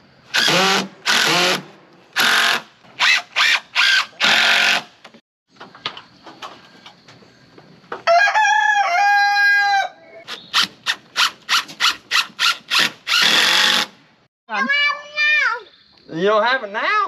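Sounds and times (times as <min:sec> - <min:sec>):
rooster crowing: 0:08.0 - 0:10.2.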